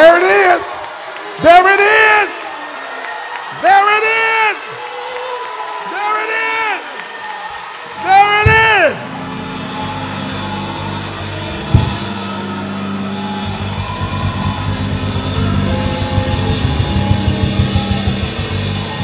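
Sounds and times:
band playing: 8.0 - 19.0
fast drumming: 8.2 - 9.1, 10.2 - 19.0.

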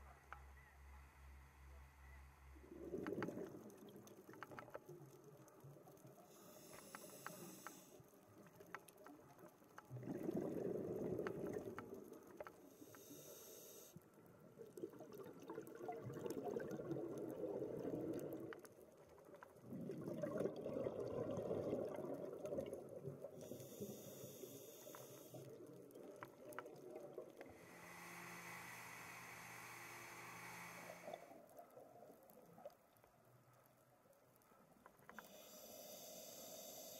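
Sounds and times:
scuba regulator hissing inhalations: 6.3 - 8.0, 12.7 - 14.0, 23.4 - 25.4, 35.2 - 36.9
bubbling exhalations: 9.9 - 11.8, 14.8 - 18.5, 19.6 - 23.4.

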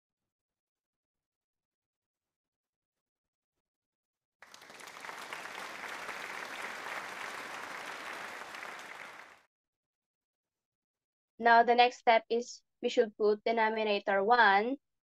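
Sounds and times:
crowd clapping: 4.4 - 9.5.

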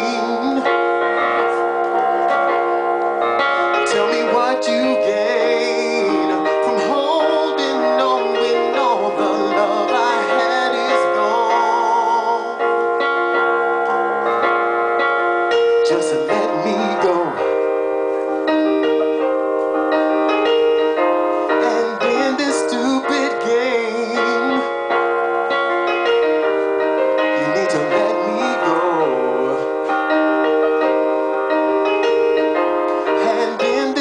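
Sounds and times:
man singing: 0.0 - 2.3, 3.6 - 12.9, 15.7 - 17.7, 21.5 - 25.0, 27.4 - 29.8, 33.1 - 34.0
electronic keyboard piano chords: 0.0 - 34.0.

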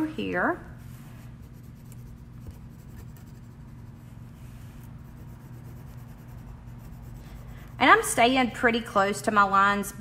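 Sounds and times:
steady low hum: 0.0 - 10.0
marker scratching on styrofoam: 1.0 - 8.2.

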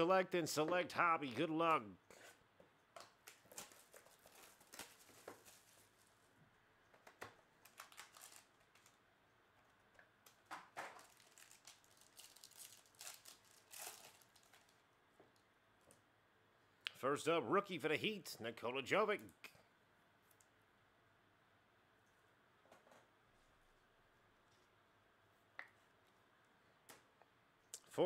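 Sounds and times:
foil pack tearing: 7.7 - 8.9, 11.0 - 14.8.

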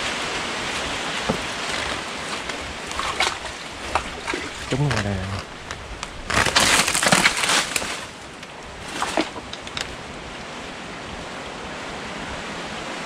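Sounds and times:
short rustle: 0.0 - 10.0.

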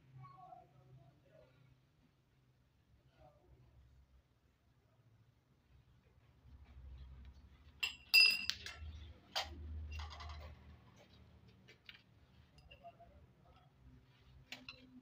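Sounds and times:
metal pipe clinking: 7.8 - 8.8
rustling handling sounds: 10.2 - 15.0.

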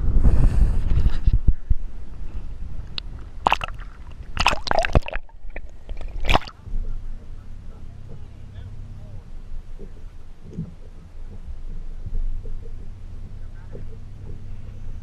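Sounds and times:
water sloshing and gurgling: 1.1 - 8.3, 9.1 - 15.0
sharp splashing: 3.0 - 6.6.

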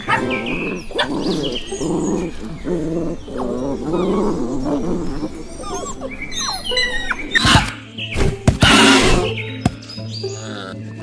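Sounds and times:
puppy growling and yapping: 0.0 - 7.8.

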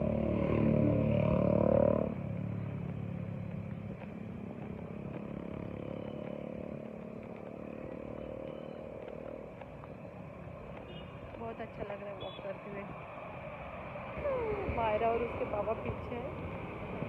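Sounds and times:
vehicle engine passing: 0.0 - 10.8
road traffic hum: 0.0 - 17.0.

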